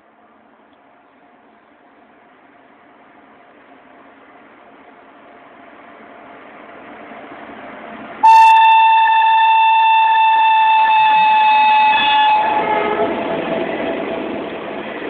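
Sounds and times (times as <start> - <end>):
train coaches rumbling past: 0.0 - 15.0
locomotive horn blast: 8.2 - 13.3.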